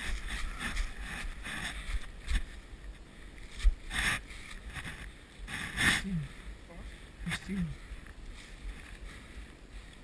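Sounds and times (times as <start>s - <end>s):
clothing brushing microphone: 0.0s - 2.5s, 3.4s - 6.1s
footsteps through dry leaves: 0.0s - 2.6s.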